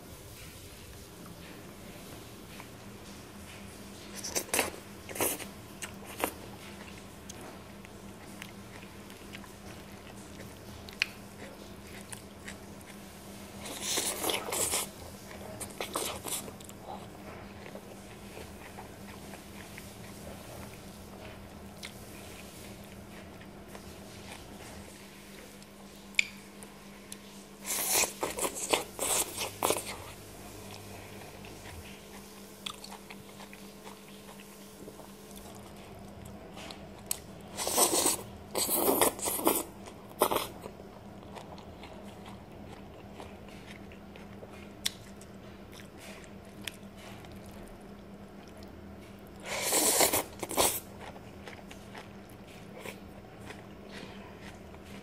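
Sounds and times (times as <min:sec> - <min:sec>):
faint chewing: 0:00.4 - 0:55.0
noodles being slurped: 0:49.4 - 0:50.9.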